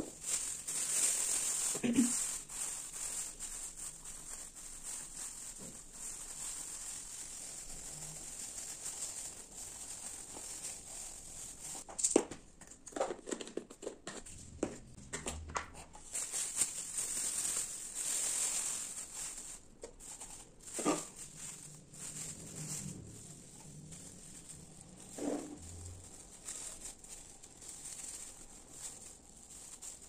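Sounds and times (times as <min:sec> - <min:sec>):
plastic bags crinkling: 0:00.0 - 0:11.9, 0:15.8 - 0:30.0.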